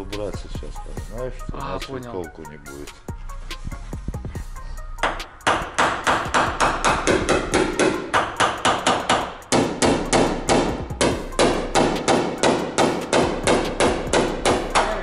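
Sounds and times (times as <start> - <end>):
hammer tapping on metal: 5.0 - 15.0.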